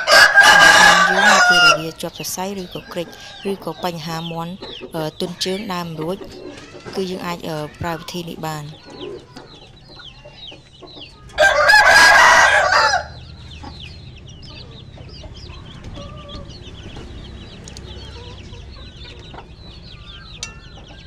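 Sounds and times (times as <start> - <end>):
rooster crowing: 0.0 - 2.0, 11.4 - 13.3
high falling chirps: 9.8 - 21.0.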